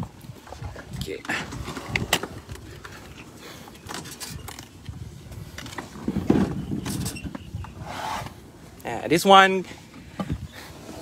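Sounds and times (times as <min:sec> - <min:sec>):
knocks and scrapes: 0:05.4 - 0:08.4.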